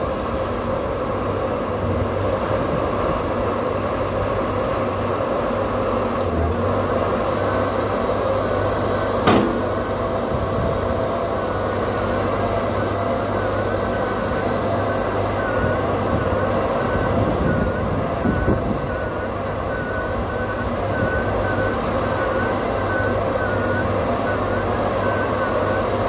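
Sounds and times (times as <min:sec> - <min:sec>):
heavy construction machinery: 0:00.0 - 0:26.0
sharp metal clank: 0:09.2 - 0:09.9.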